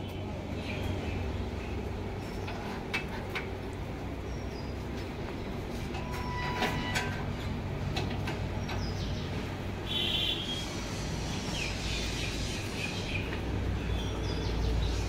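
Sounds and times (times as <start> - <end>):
birds chirping: 0.0 - 5.7, 8.3 - 15.0
gate squeak: 5.9 - 7.5
metal gate clanking and rattling: 5.9 - 8.9.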